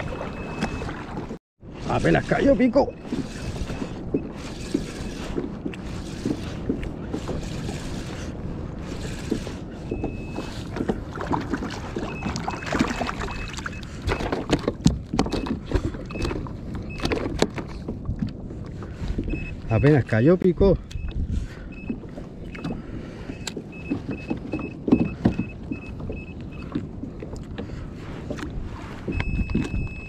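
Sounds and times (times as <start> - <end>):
water washing around kayak: 0.0 - 20.4
wind buffeting microphone: 0.0 - 30.0.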